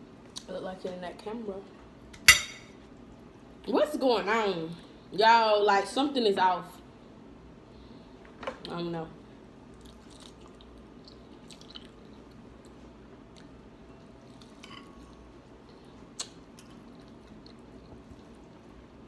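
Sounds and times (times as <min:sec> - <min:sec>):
people chewing and smacking: 0:09.7 - 0:18.8.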